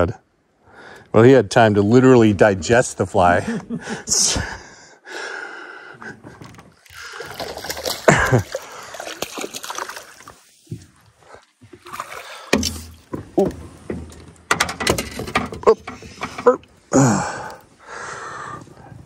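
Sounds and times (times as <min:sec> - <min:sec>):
water splashing beside boat: 0:06.2 - 0:14.6.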